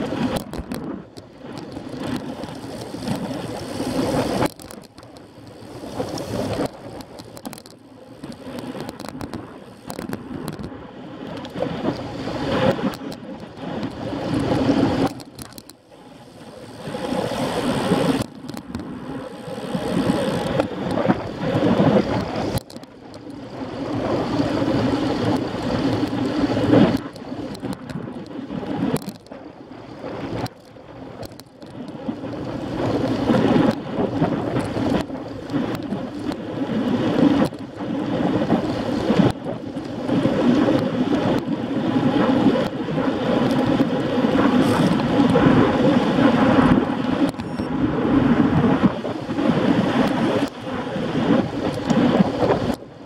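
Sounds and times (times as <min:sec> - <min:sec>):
road noise: 0:00.0 - 0:37.8, 0:38.5 - 0:53.0
wind buffeting microphone: 0:16.2 - 0:53.0.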